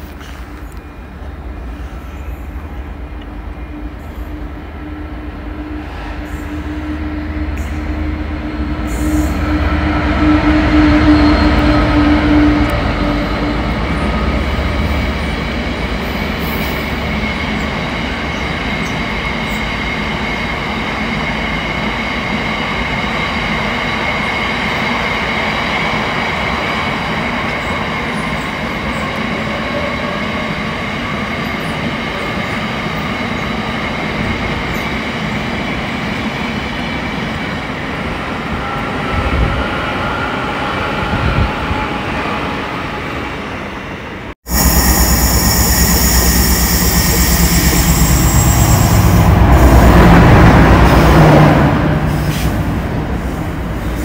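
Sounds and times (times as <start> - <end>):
train wagons rumbling over rails: 0.0 - 54.0
high ringing wheel squeal: 44.5 - 49.5
locomotive engine: 44.5 - 53.8.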